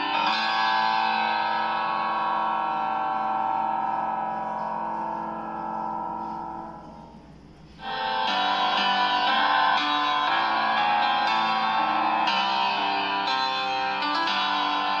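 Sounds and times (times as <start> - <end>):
long held music chord: 0.0 - 7.2.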